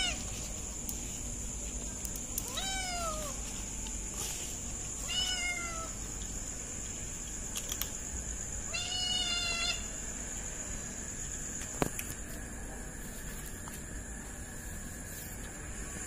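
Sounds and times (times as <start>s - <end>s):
kittens meowing: 5.0s - 6.0s, 8.7s - 9.9s.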